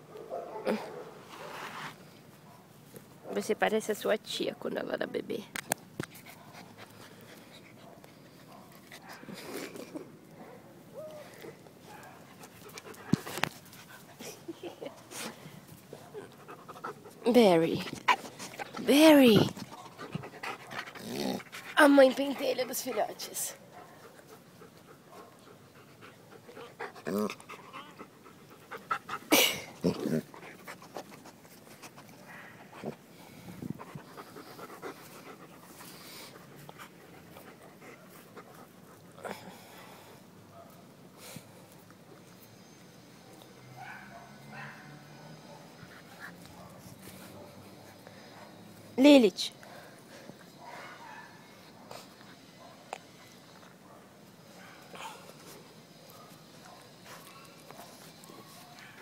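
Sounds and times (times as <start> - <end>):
puppy panting: 12.0 - 39.2, 45.5 - 48.6.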